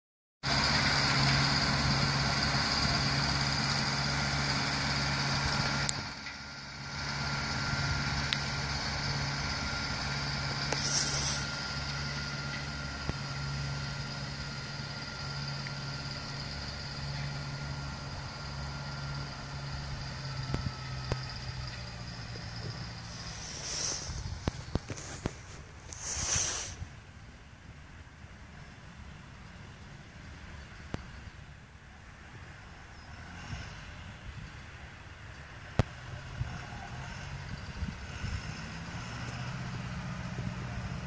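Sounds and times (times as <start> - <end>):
tractor diesel engine under load: 0.4 - 41.0
short hiss: 10.6 - 11.8, 23.0 - 26.9.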